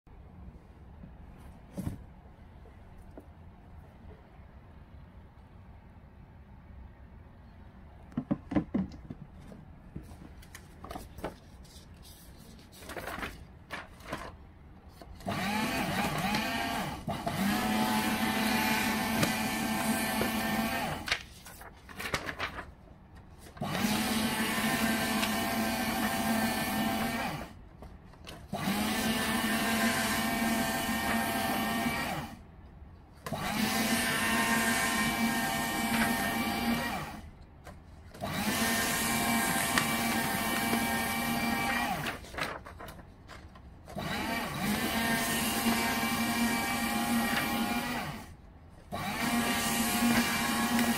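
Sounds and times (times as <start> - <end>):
paper shredder running: 15.2 - 21.2, 23.6 - 27.6, 28.5 - 32.4, 33.2 - 37.2, 38.1 - 42.6, 43.9 - 50.9.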